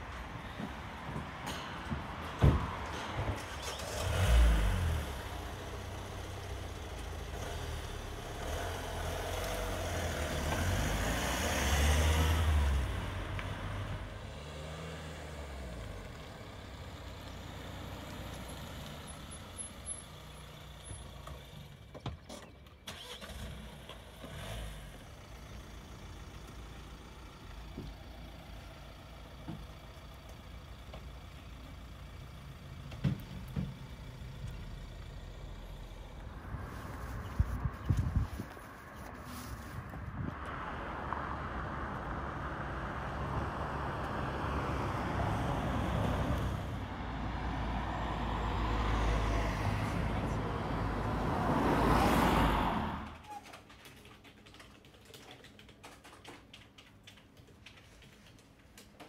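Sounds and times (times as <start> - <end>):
van engine starting and running: 0.0 - 53.4.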